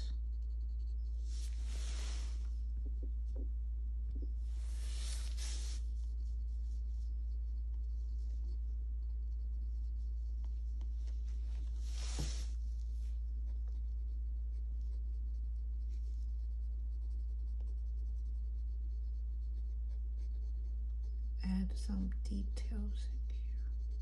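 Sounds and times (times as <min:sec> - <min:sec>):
pencil scratching on paper: 0:00.0 - 0:02.5, 0:04.5 - 0:24.0
steady low hum: 0:00.0 - 0:24.0.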